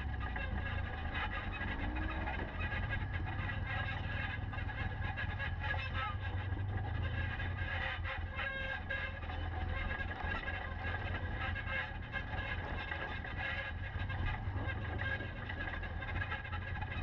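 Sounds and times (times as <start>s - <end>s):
off-road vehicle engine rumbling: 0.0s - 17.0s.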